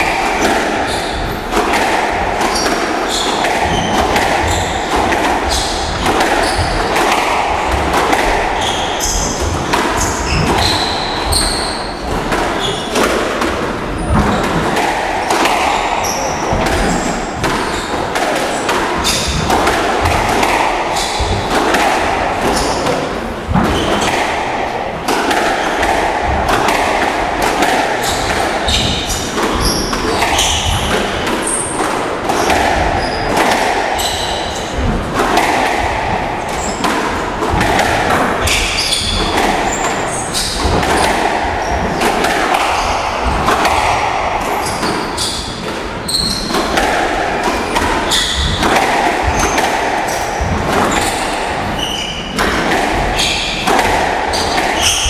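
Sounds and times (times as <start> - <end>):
squash ball knocks: 0.0 - 55.0
shoes squeaking on court floor: 0.8 - 1.4, 2.5 - 7.0, 8.2 - 13.0, 15.6 - 19.4, 20.5 - 21.5, 23.7 - 24.3, 28.0 - 31.8, 32.4 - 33.3, 33.9 - 34.8, 36.6 - 36.9, 38.4 - 46.7, 47.4 - 53.6.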